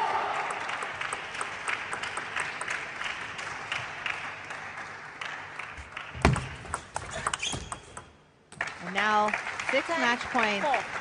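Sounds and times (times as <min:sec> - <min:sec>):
spectators applauding: 0:00.0 - 0:06.6, 0:08.6 - 0:11.0.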